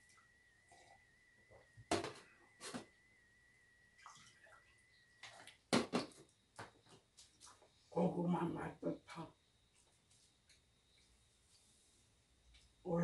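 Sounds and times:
faint steady high tone: 0:00.0 - 0:05.6.

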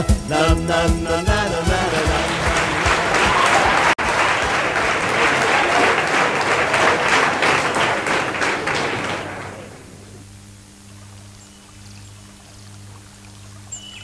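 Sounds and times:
audience applauding: 0:01.7 - 0:10.2.

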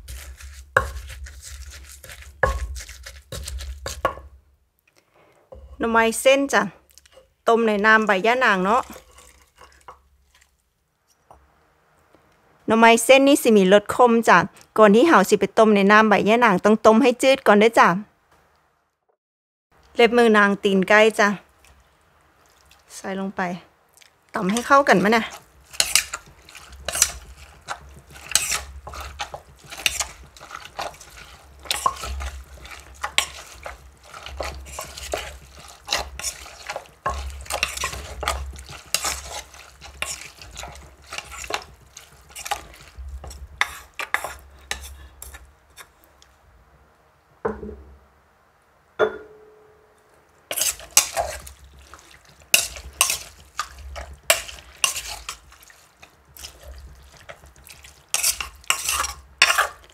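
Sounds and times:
pestle pounding in a mortar: 0:00.0 - 0:04.4, 0:25.7 - 0:44.4
knocks and clinks: 0:49.0 - 0:50.0.

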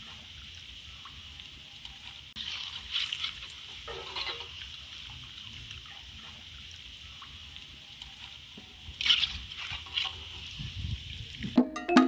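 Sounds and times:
food deep-frying in hot oil: 0:00.0 - 0:11.6
metal ladle scraping a pan: 0:02.4 - 0:04.7, 0:09.0 - 0:10.6.

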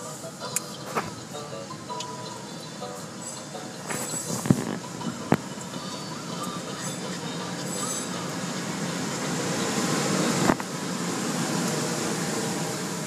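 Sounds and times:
car wash equipment rushing: 0:03.8 - 0:13.0.

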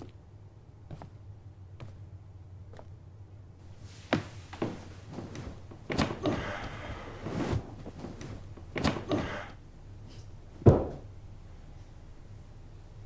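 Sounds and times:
fabric rustling: 0:03.6 - 0:09.4
soft knocks and thuds: 0:04.0 - 0:09.4, 0:10.6 - 0:11.1.

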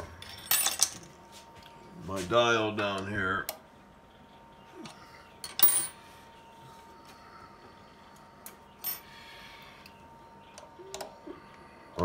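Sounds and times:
faint hum with thin whine: 0:00.0 - 0:12.0
metal parts clattering: 0:00.2 - 0:01.1.

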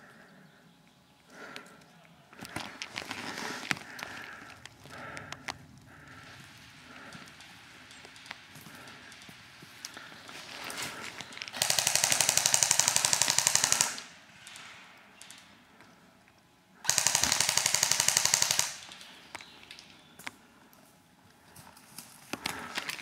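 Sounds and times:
airsoft rifle full-auto bursts: 0:11.5 - 0:14.6, 0:16.8 - 0:19.0.

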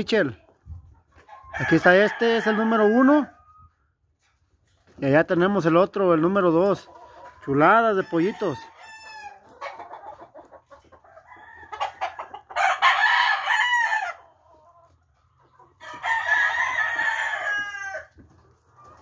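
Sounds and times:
rooster crowing: 0:12.6 - 0:14.2, 0:15.9 - 0:18.1.

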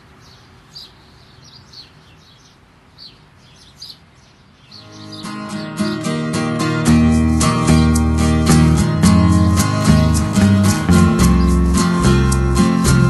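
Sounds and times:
background hiss: 0:00.0 - 0:13.0
small birds chirping: 0:00.0 - 0:13.0
acoustic guitar music: 0:04.8 - 0:13.0.

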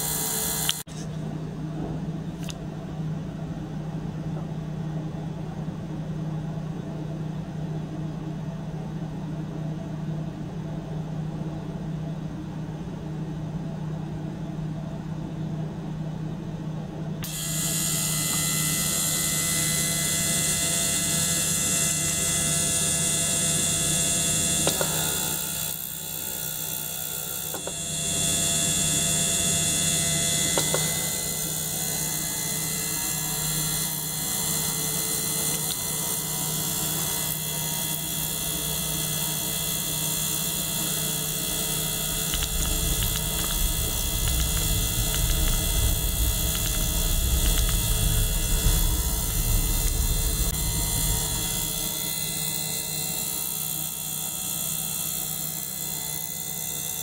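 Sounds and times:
ultrasonic cleaner and pump humming: 0:00.0 - 0:01.1, 0:17.2 - 0:57.0
low rumble: 0:42.0 - 0:52.0.

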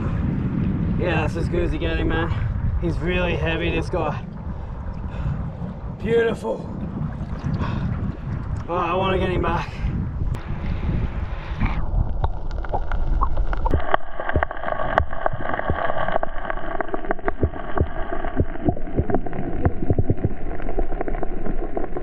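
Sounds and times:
wind buffeting microphone: 0:00.0 - 0:14.4
sharp clicks and splashes: 0:07.1 - 0:08.7, 0:11.4 - 0:22.0
sea water sloshing over rocks: 0:11.4 - 0:22.0.

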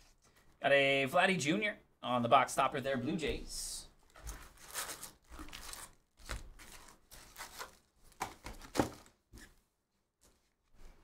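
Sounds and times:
foil packs crinkling: 0:04.1 - 0:09.1.

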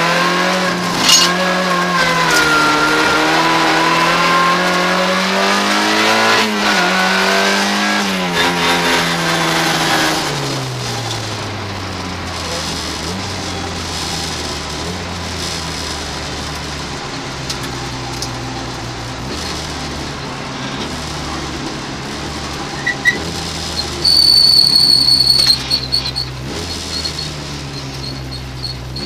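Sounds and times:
car engine revving hard: 0:00.0 - 0:29.0.

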